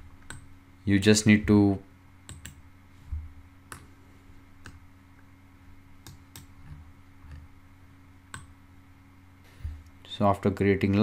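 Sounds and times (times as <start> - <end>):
low steady hum: 0.0 - 11.0
computer mouse clicks: 0.2 - 0.5, 2.3 - 2.6, 3.7 - 3.9, 4.6 - 4.8, 6.0 - 7.4, 8.3 - 8.5.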